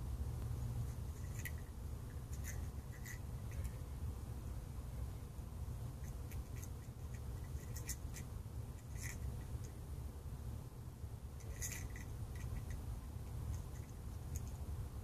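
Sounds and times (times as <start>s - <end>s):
bird bill pecking at shell: 0.4s - 4.2s, 5.8s - 10.0s, 11.3s - 14.9s.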